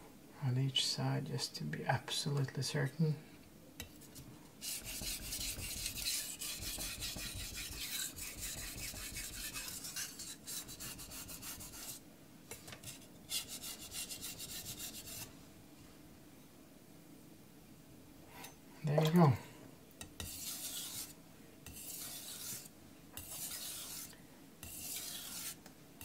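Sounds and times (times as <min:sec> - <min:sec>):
knife scraping on whetstone: 0:04.6 - 0:12.0, 0:12.6 - 0:15.3, 0:20.1 - 0:25.7.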